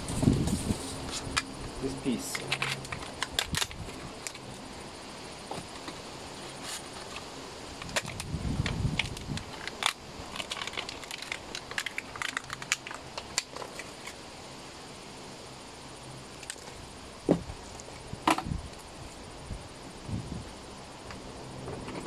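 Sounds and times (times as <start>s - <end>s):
metal parts clicking and scraping: 2.3s - 4.4s.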